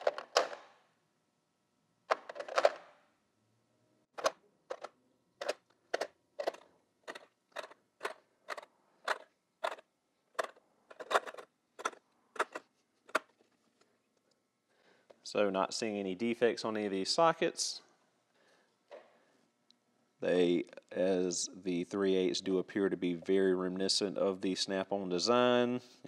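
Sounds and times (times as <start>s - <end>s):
metal sockets rattling: 10.4s - 13.3s.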